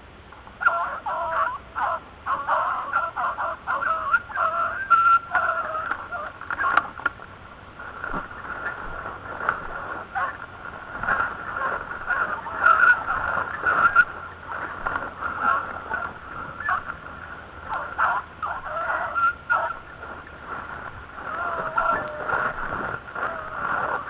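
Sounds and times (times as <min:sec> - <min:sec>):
branches swishing and scraping: 0:04.3 - 0:24.0
branches snapping: 0:05.4 - 0:18.6, 0:19.5 - 0:24.0.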